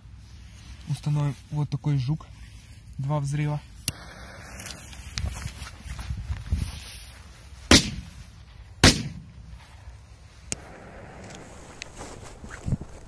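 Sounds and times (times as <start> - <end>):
firework shooting up: 3.9 - 5.2, 10.5 - 13.0
firework bangs: 10.5 - 13.0.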